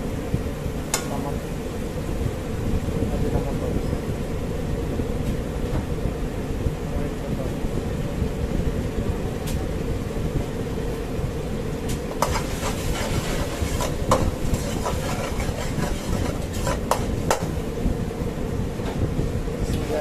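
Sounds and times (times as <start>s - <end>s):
sauce bubbling: 12.2s - 17.7s
ladle knocking against pan: 13.6s - 17.6s.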